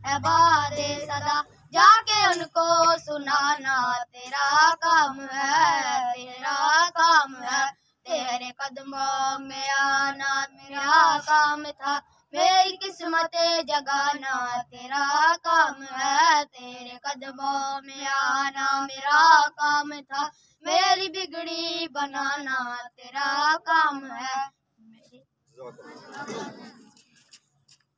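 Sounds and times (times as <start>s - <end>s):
person singing devotional song: 0.0s - 24.5s
singer breathing: 20.3s - 20.6s.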